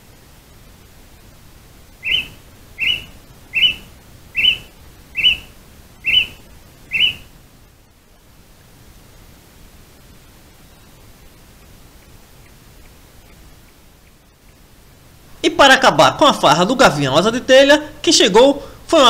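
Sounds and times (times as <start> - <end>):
hawk screaming: 2.0 - 7.3.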